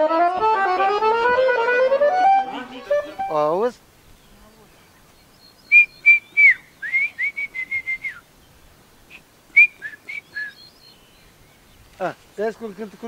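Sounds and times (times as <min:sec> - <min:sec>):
man whistling a tune: 0:05.7 - 0:08.2, 0:09.1 - 0:10.6.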